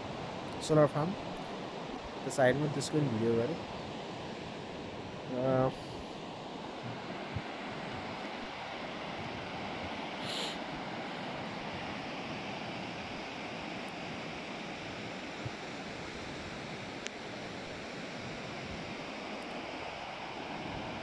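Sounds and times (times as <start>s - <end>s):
river rushing in flood: 0.0s - 21.0s.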